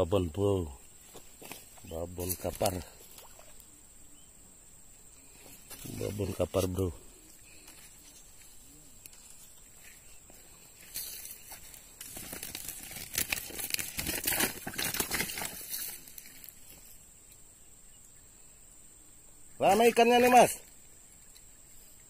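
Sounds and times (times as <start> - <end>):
crinkling and rustling handling: 1.0 - 3.1, 7.5 - 16.9.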